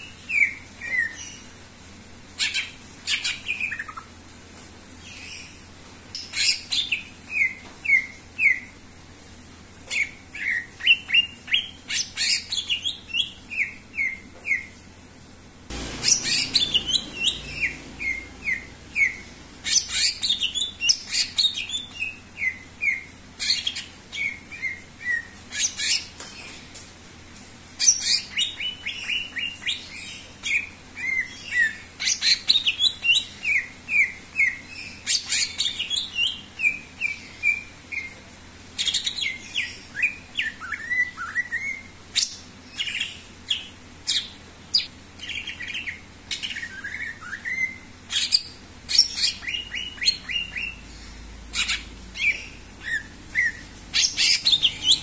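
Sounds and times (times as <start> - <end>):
bird singing whistled notes: 15.9 - 23.1.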